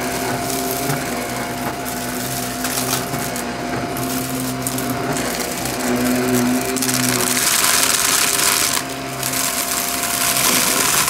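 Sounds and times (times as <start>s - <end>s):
grit crackling in vacuum: 0.0s - 11.0s
vacuum cleaner whine: 0.0s - 11.0s.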